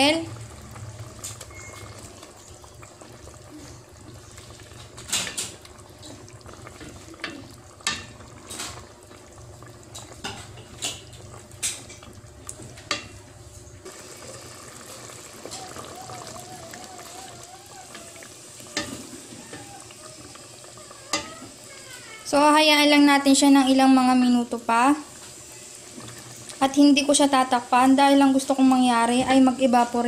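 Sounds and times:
stew bubbling: 0.0 - 29.4.

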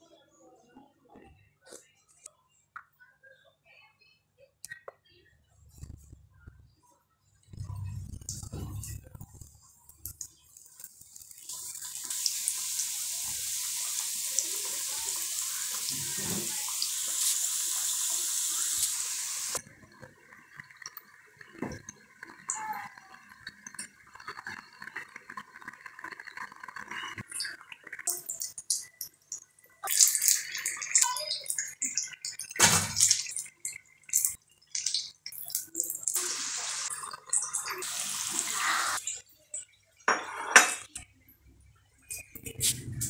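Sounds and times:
food deep-frying in sizzling oil: 10.1 - 39.1.

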